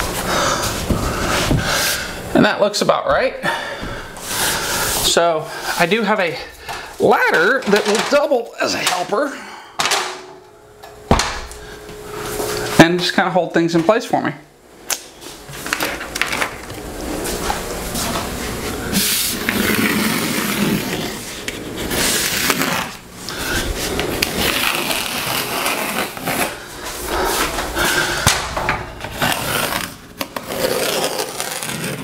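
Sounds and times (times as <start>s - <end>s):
board scraping against wall: 17.0s - 28.2s.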